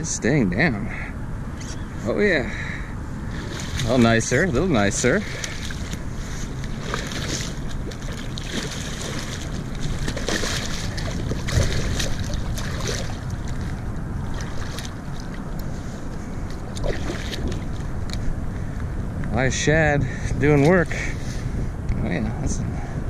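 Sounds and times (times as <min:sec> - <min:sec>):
wind buffeting microphone: 0:00.8 - 0:23.0
water lapping against kayak hull: 0:03.2 - 0:18.7.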